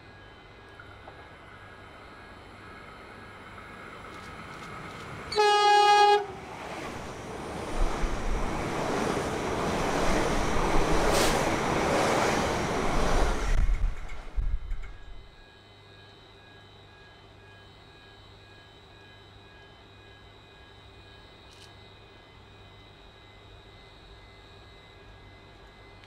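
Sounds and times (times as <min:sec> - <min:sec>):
train rushing past: 0:01.3 - 0:15.2
train horn blast: 0:05.3 - 0:06.6.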